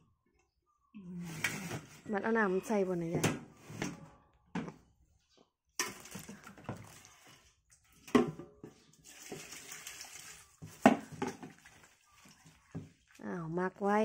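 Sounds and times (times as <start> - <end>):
water pouring into pot: 9.0 - 12.6.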